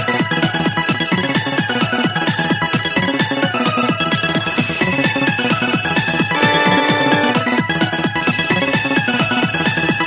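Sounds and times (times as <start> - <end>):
upbeat video game music: 0.0 - 10.0
held tone: 4.5 - 6.4, 8.2 - 10.0.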